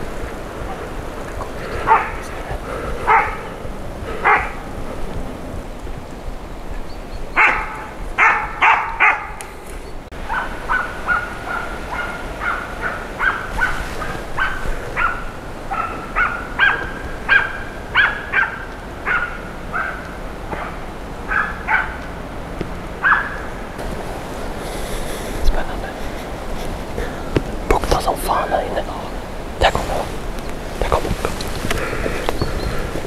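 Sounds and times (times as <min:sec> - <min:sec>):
dog barking: 0:01.8 - 0:02.3, 0:03.0 - 0:03.5, 0:04.2 - 0:04.6, 0:07.4 - 0:09.4, 0:10.2 - 0:22.0, 0:23.0 - 0:23.5
steady hiss: 0:23.6 - 0:33.0.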